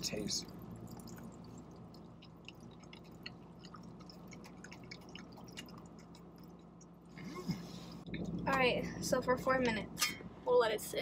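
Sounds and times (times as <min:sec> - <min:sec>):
low steady hum: 0:00.0 - 0:11.0
hot water trickling into cup: 0:00.5 - 0:07.1.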